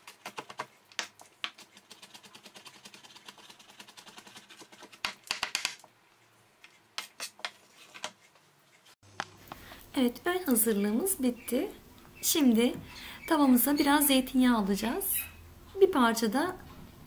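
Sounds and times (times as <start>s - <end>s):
knife chopping: 0.0s - 5.9s.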